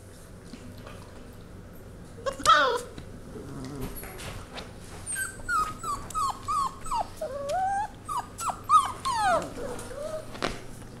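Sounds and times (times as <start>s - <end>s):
puppies whining: 2.2s - 4.2s, 5.0s - 10.5s.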